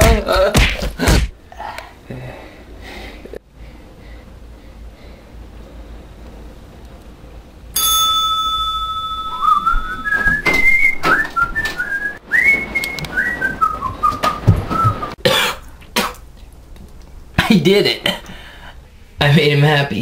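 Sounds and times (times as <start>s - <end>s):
high whistle-like tone: 8.9s - 15.0s
whistled tune: 9.1s - 15.2s.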